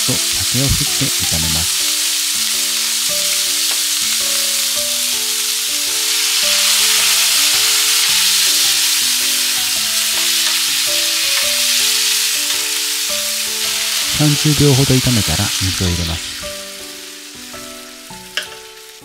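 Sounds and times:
food sizzling in frying pan: 0.0 - 19.0
soft background music: 0.0 - 19.0.

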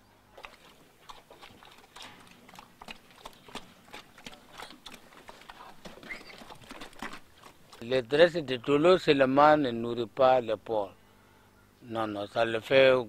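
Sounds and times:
pigs chewing feed: 0.3 - 8.4.

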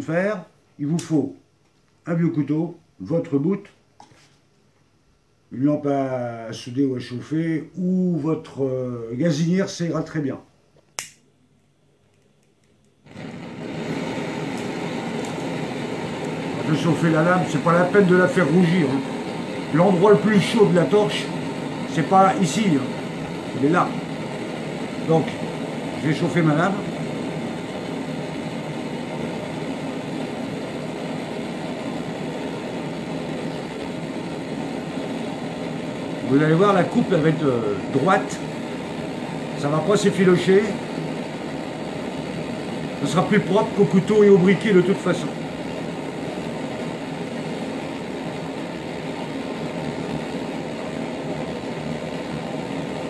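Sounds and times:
blowtorch flame hissing: 13.0 - 53.0.

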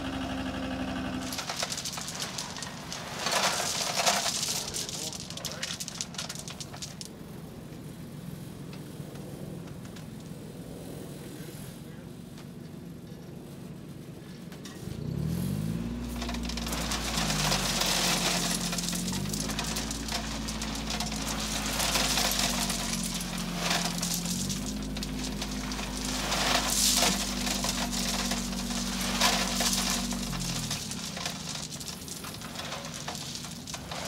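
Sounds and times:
small dumper engine revving: 0.0 - 2.1, 14.8 - 33.5
gravel rattling and pouring out: 0.0 - 8.5, 14.8 - 34.0.

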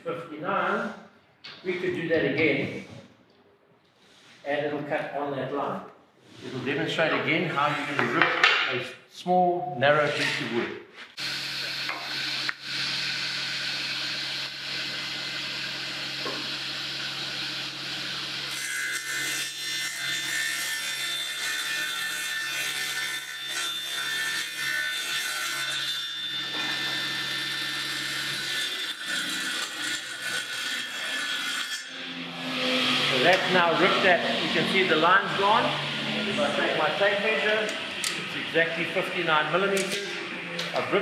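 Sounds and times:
panel saw motor running: 11.2 - 41.0.

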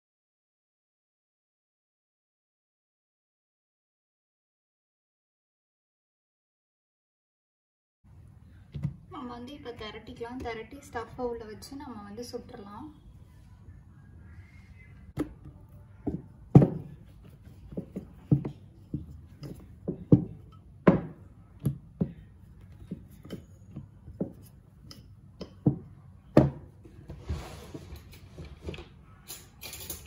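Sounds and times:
rolling pin knocking on a mat: 15.2 - 24.4, 25.4 - 26.7.

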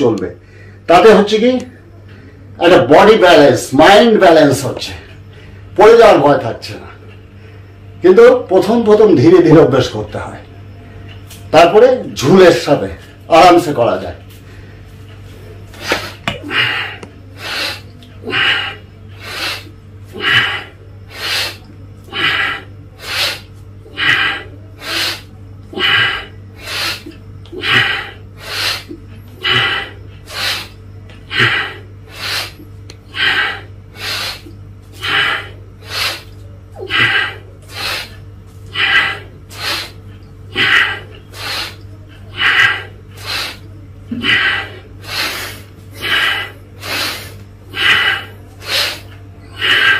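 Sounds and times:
man breathing forcefully: 15.7 - 49.9.

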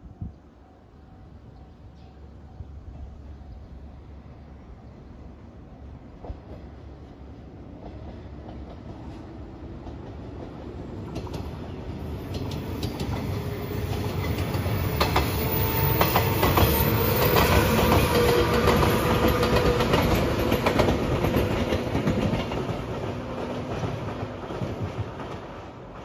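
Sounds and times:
electric train passing: 2.6 - 26.0
wheels clacking over rail joints: 7.8 - 26.0.

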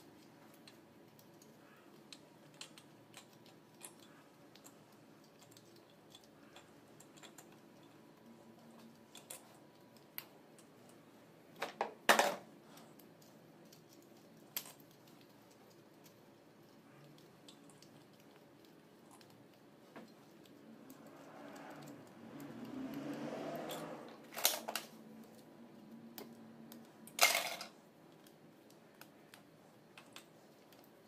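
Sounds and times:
small metal clicks and taps: 0.0 - 11.9
metal parts clattering: 27.1 - 27.7.

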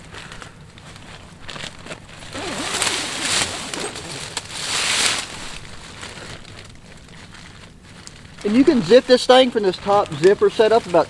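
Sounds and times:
zipper being unzipped: 2.2 - 4.7.

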